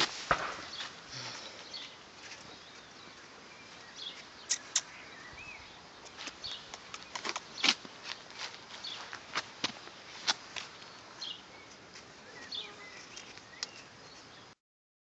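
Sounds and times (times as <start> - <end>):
faint bird chirp: 0.6 - 9.4, 10.1 - 14.6
puppy clicks and scuffs on dirt: 6.0 - 11.0.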